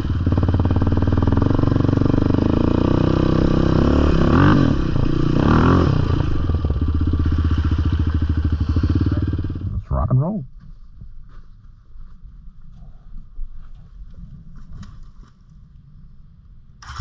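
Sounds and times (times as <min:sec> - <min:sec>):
atv engine revving: 0:00.0 - 0:09.8.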